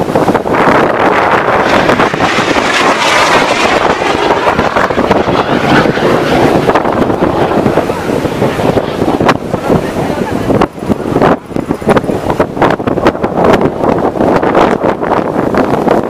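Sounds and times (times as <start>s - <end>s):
jet aircraft roaring: 0.0s - 16.0s
wind buffeting microphone: 0.0s - 16.0s.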